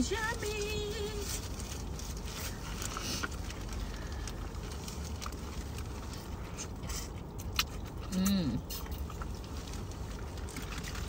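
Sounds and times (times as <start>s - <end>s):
plastic gloves and bags crackling: 0.0s - 7.2s
low hum inside car: 0.0s - 11.0s
chewing: 1.2s - 11.0s.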